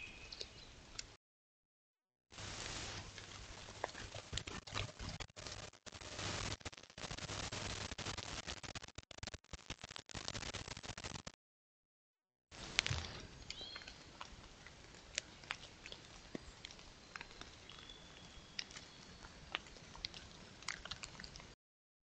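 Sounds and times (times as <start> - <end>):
steady hiss: 2.4 - 3.8
small clicks and ticks: 3.2 - 11.4, 12.6 - 21.6.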